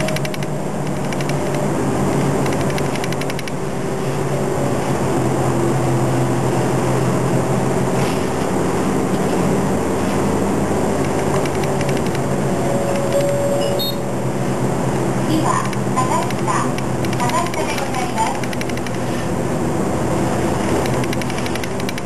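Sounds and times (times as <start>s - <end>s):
bus diesel engine running: 0.0s - 22.0s
road noise: 0.0s - 22.0s
brief high tone: 12.7s - 14.1s.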